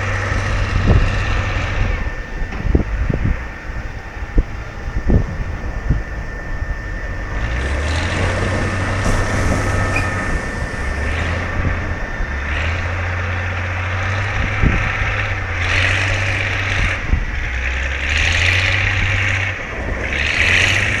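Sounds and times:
wind rumble on microphone: 0:00.0 - 0:21.0
surf breaking on a beach: 0:07.2 - 0:16.7, 0:18.3 - 0:21.0.

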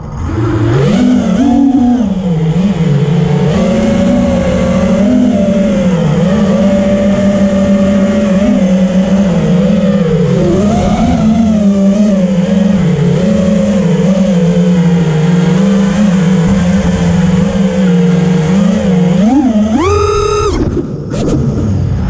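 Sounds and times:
drone motors buzzing: 0:00.0 - 0:22.0.

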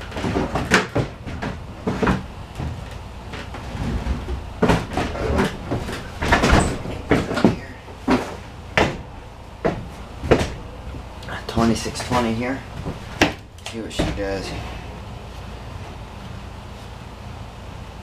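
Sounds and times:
equipment knocking and clunking: 0:00.0 - 0:14.4.

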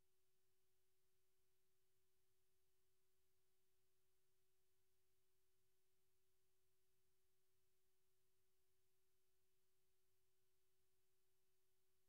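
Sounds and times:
faint steady tone: 0:00.0 - 0:12.0.

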